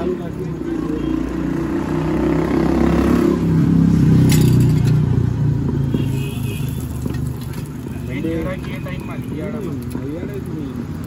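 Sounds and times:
vehicle engine passing: 0.0 - 5.9.

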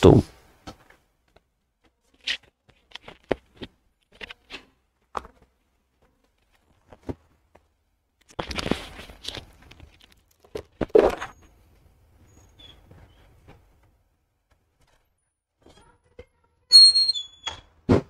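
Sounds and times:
clothing rustle: 8.4 - 10.3
thumps: 17.5 - 18.0.

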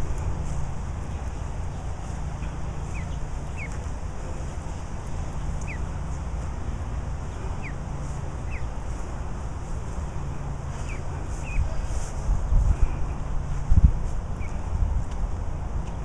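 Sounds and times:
goslings peeping: 0.0 - 12.1, 14.3 - 14.7
steady low rumble: 0.0 - 16.0.

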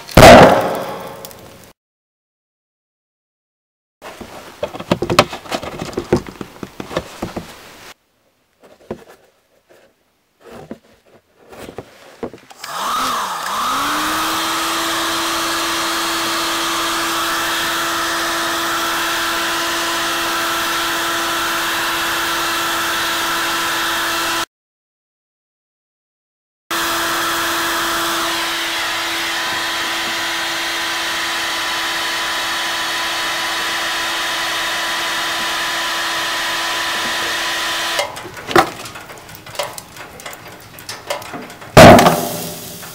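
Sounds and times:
carton handled on cardboard: 4.1 - 7.9, 8.6 - 12.5
hot-air blower whining: 12.6 - 24.4, 26.7 - 38.2.

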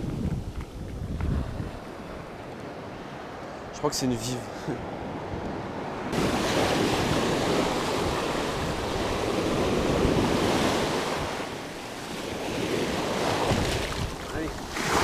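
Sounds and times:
wind buffeting microphone: 0.0 - 3.1, 5.1 - 15.0
surf washing up sand: 6.1 - 15.0.

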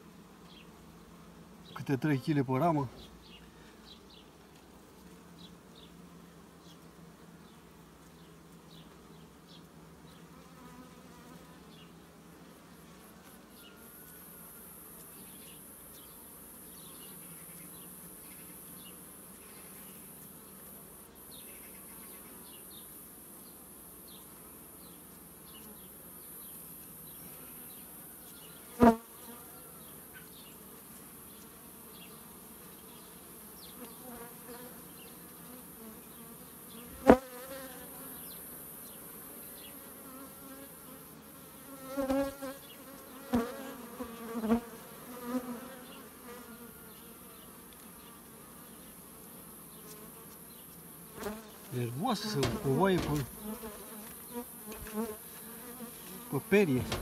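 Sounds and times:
faint small ticks: 15.0 - 16.2, 33.6 - 34.0, 47.7 - 48.0
bees buzzing: 28.6 - 57.0
steady high hiss: 51.7 - 54.3, 56.2 - 57.0
sharp knock: 52.2 - 53.4, 56.8 - 57.0.

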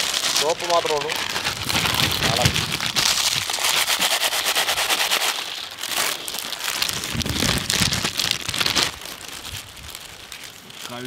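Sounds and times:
potato chips pouring onto metal tray: 0.0 - 9.8, 10.4 - 11.0.

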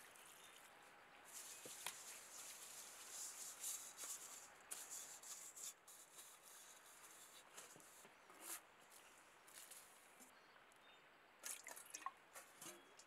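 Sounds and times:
pine needles swishing in metal bowl: 1.3 - 10.0.

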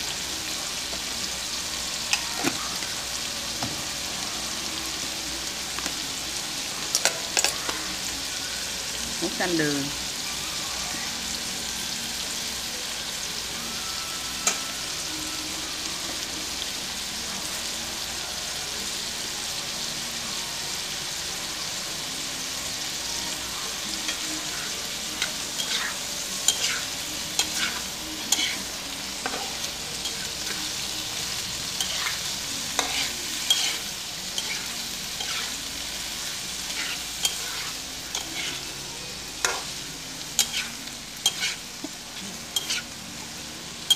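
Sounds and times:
shrimp sizzling in hot oil: 0.0 - 43.9
metal spatula scraping a wok: 24.1 - 30.6, 31.6 - 38.7, 39.4 - 43.0.

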